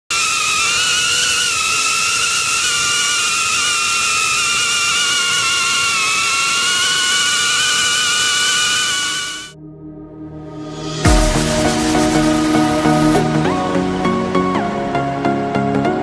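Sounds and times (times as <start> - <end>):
drone motors whining: 0.1 - 9.6, 10.7 - 15.4
rushing air hiss: 11.0 - 13.8.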